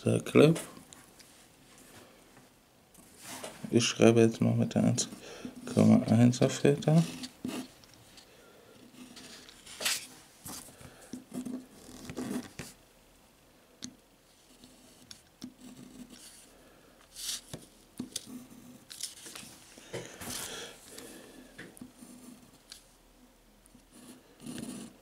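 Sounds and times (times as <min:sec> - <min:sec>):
pen nib scratching on paper: 0:14.5 - 0:16.4, 0:23.9 - 0:25.0.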